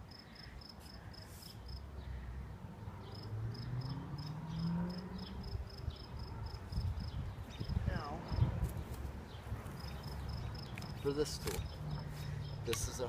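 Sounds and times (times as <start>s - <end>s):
cricket chirping: 0.0s - 1.9s, 3.0s - 8.5s, 9.7s - 12.6s.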